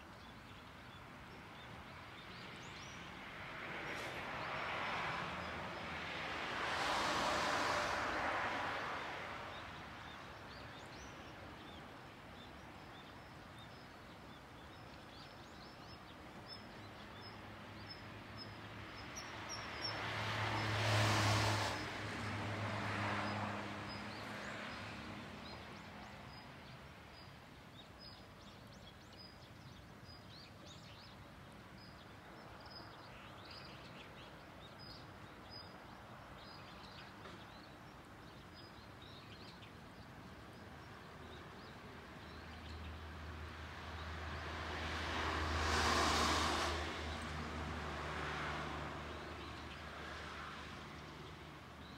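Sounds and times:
vehicle passing: 4.3 - 9.6, 20.0 - 25.2, 43.4 - 51.6.

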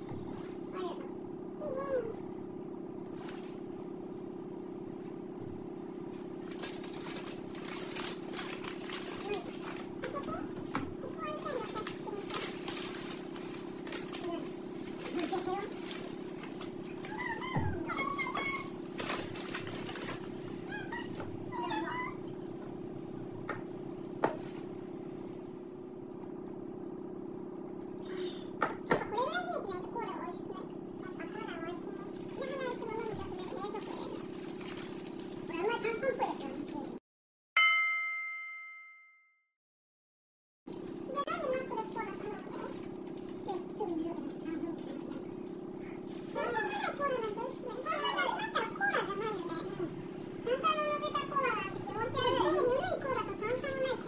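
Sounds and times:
low mechanical hum: 0.0 - 37.0, 40.7 - 54.0
paper rustling: 6.4 - 9.9, 11.3 - 17.4, 18.2 - 20.3
cola pouring into a tumbler: 32.0 - 36.9, 40.7 - 49.4.

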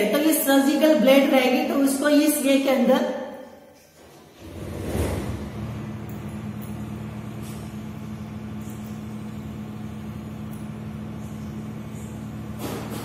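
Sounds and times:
low engine drone: 4.4 - 13.0.

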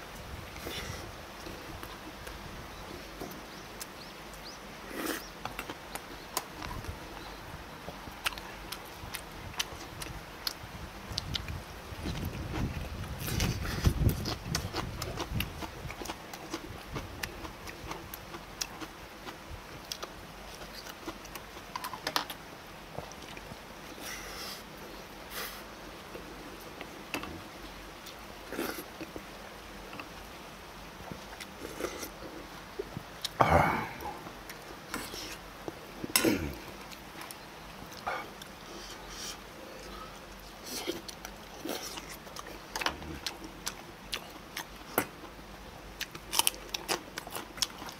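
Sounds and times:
chewing and lip-smacking: 8.2 - 22.4, 40.6 - 45.3, 46.0 - 47.9.

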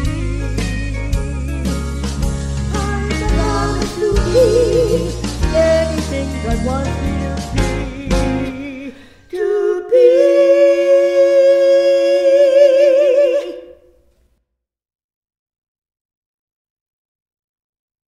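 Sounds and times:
person singing held note with vibrato: 9.3 - 14.1.

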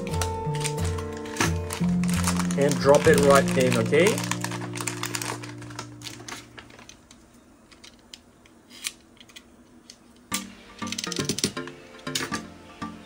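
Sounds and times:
background music: 0.0 - 6.2, 10.3 - 13.0
hands handling plastic wrapper: 0.0 - 9.0.

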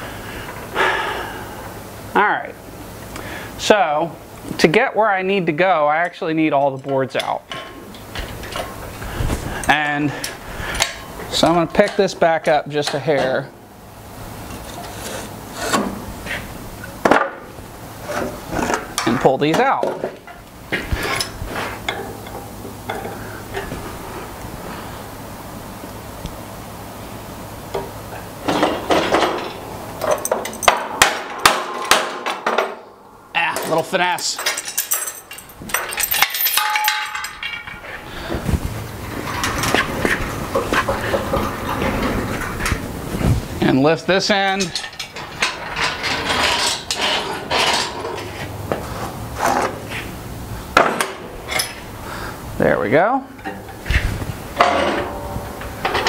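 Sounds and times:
wooden boards clattering and knocking: 17.0 - 17.5, 30.7 - 32.8, 50.8 - 51.2
metallic clanks and knocks: 27.7 - 32.8, 33.5 - 42.9, 44.5 - 48.4, 54.6 - 56.0.

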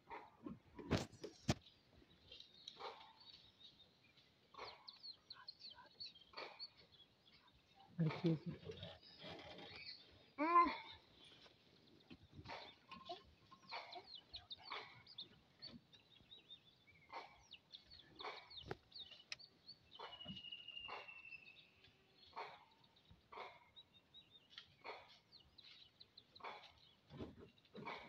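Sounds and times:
birds chirping and twittering: 0.0 - 28.0
soft scattered clicks: 18.6 - 22.1
drawn-out bird whistle: 20.0 - 21.8.

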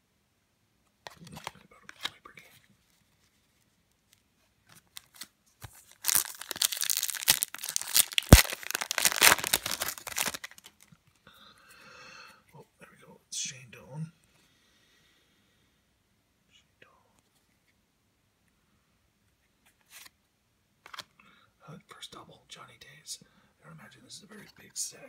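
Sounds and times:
cards rustling: 1.0 - 10.9, 20.8 - 21.1
wrapper tearing and crinkling: 4.7 - 10.9.

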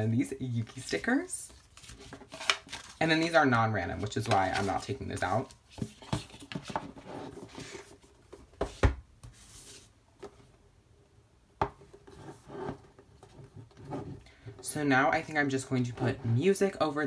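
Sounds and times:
cardboard boxes sliding and rubbing: 5.8 - 10.0.

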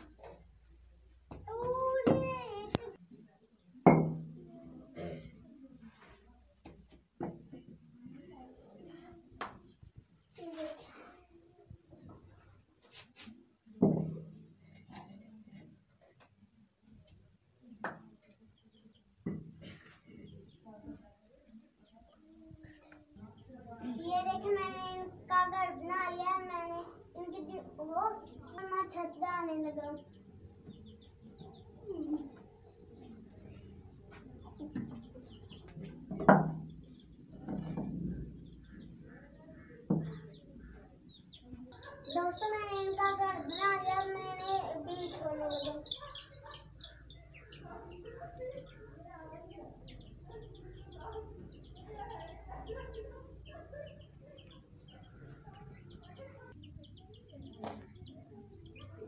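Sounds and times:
baby chicks peeping: 24.1 - 59.0.

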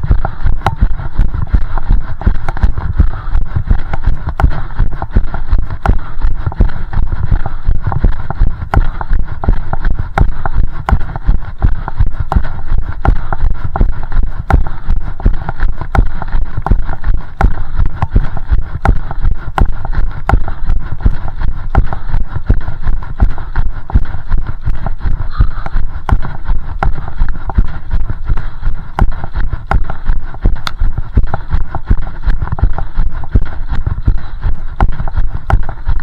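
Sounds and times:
low rumble of camera jostling: 0.0 - 36.0.

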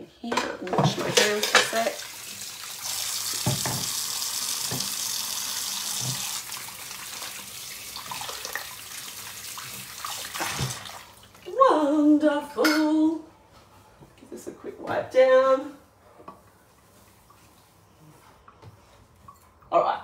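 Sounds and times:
tap running into sink: 3.2 - 5.0, 5.9 - 6.4.

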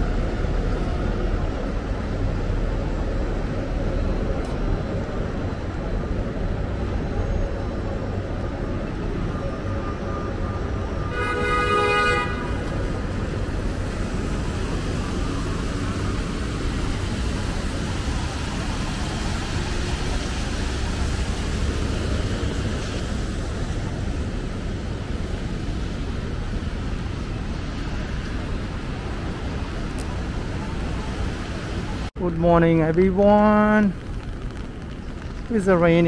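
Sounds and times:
city traffic noise: 0.0 - 36.0
vehicle horn honk: 11.0 - 12.6.

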